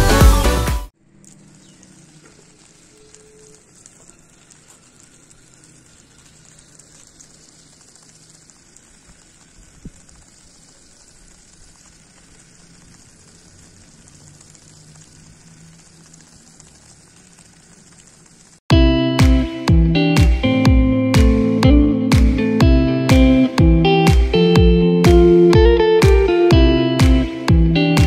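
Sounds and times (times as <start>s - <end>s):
toy car crackling over gritty ground: 1.2s - 18.6s.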